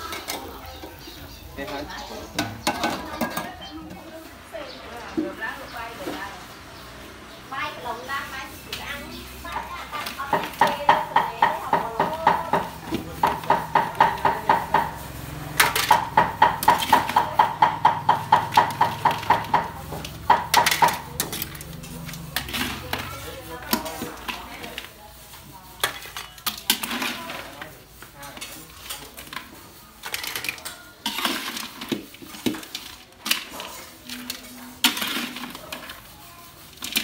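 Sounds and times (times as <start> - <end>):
metal ladle scraping a wok: 8.2 - 17.4, 18.4 - 37.0.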